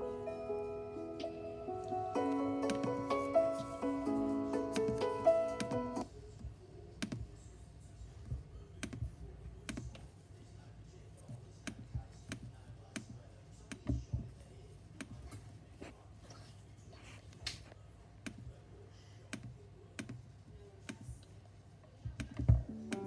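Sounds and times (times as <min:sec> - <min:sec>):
computer mouse clicks: 0:07.0 - 0:07.2, 0:19.3 - 0:20.2, 0:22.1 - 0:23.0.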